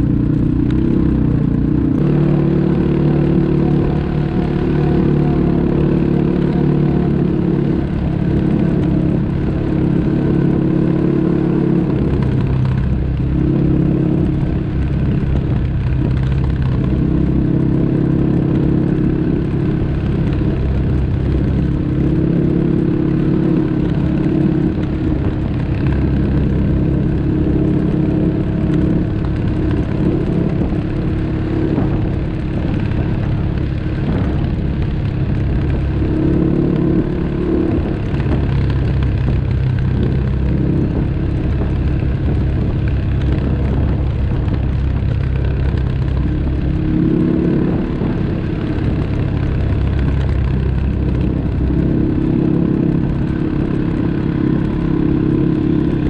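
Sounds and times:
atv engine running: 0.0s - 56.0s.

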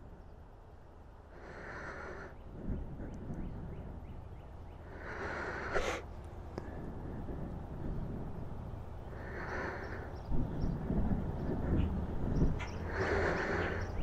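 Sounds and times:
person breathing out: 4.9s - 6.9s
low rumble: 6.1s - 14.0s.

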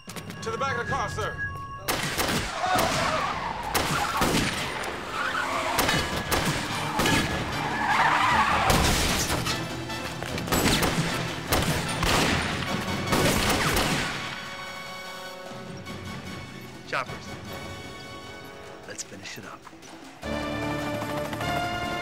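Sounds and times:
action music score with hits: 0.0s - 22.0s
car sounds: 2.4s - 12.8s.

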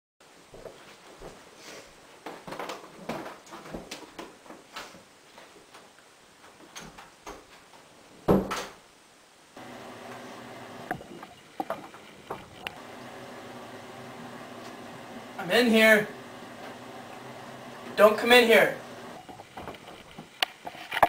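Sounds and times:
room hum: 9.5s - 21.0s
footsteps: 9.6s - 15.4s, 18.8s - 21.0s.

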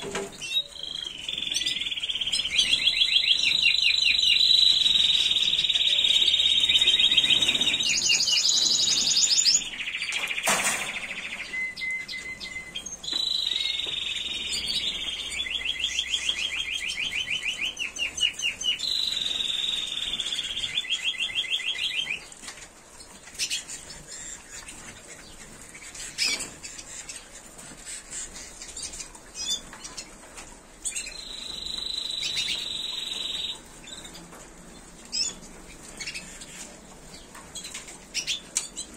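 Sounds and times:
scattered bird chirps: 0.0s - 22.3s, 30.9s - 34.2s
canaries singing trills: 0.0s - 38.9s.

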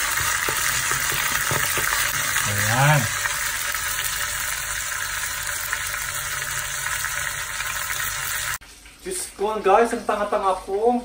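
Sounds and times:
meat sizzling in oil: 0.0s - 8.6s.

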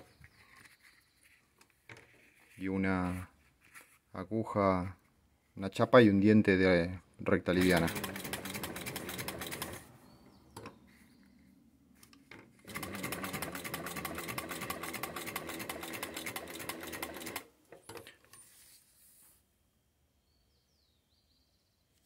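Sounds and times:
sewing machine clattering: 7.5s - 9.8s, 12.6s - 18.1s.

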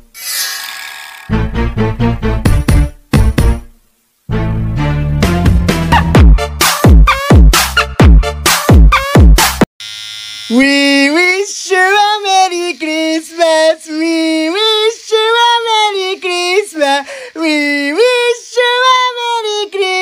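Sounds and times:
high voice singing: 10.5s - 20.0s.

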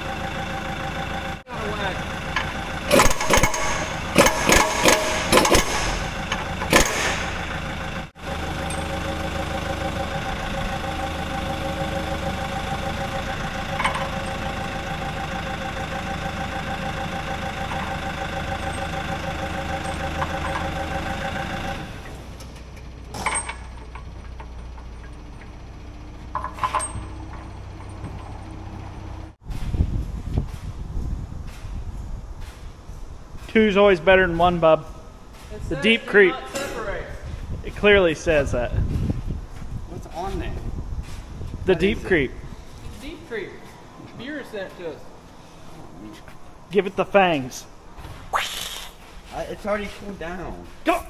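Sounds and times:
engine running with slight pulse: 0.0s - 33.4s
sharp knocks: 2.9s - 7.4s.

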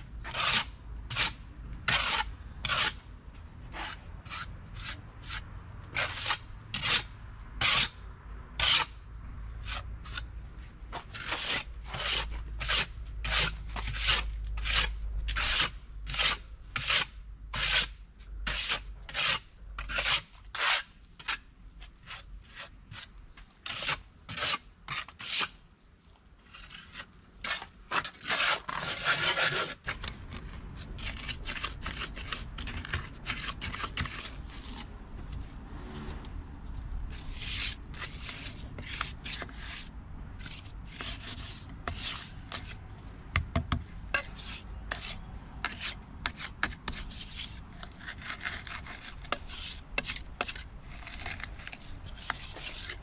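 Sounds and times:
trowel scraping wet mortar: 0.2s - 3.0s, 3.7s - 8.0s, 11.0s - 17.9s, 18.5s - 21.4s, 22.0s - 25.6s, 26.4s - 34.9s, 37.1s - 42.8s, 44.2s - 53.0s
steady low rumble: 34.2s - 38.8s.

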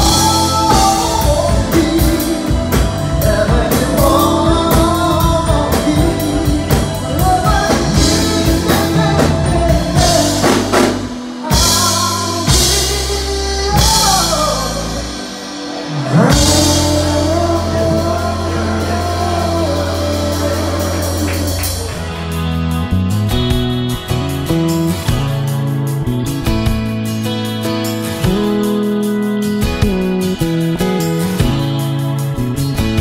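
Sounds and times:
lead vocals: 0.0s - 22.9s
drum kit: 0.0s - 33.0s
electric guitar: 0.0s - 33.0s.

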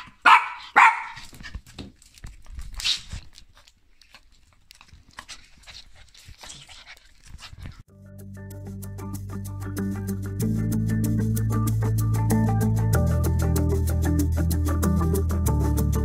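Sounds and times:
rustling and small knocks: 1.1s - 7.9s
background music: 7.9s - 16.0s.

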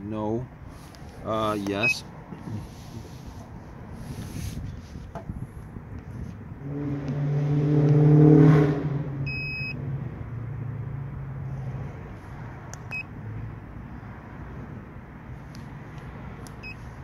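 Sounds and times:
car engine passing by: 6.1s - 17.0s.

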